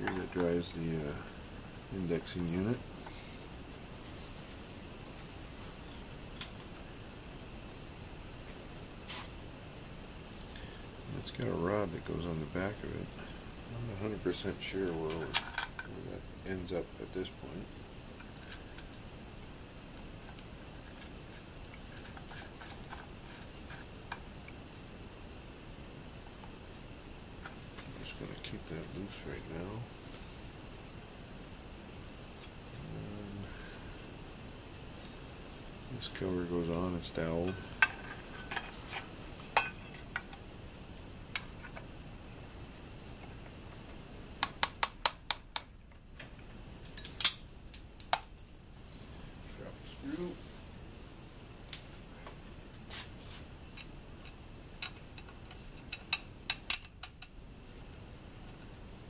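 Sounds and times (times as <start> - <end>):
metallic clicks of steel parts: 53.8 - 57.3.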